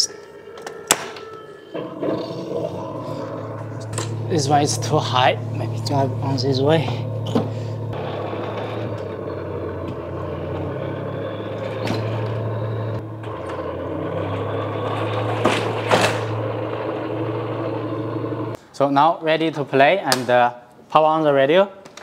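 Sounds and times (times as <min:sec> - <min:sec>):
toy tank mechanical drone: 0:08.0 - 0:18.5.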